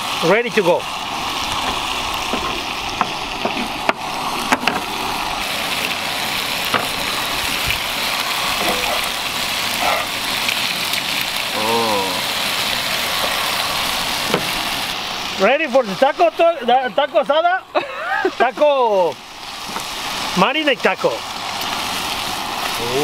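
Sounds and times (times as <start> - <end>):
steak sizzling in skillet: 0.0 - 23.0.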